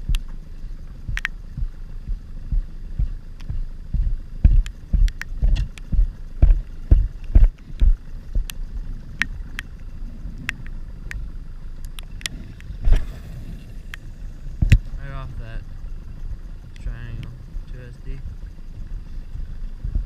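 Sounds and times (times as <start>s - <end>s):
raindrop ticks: 0.0s - 13.0s, 13.9s - 14.9s.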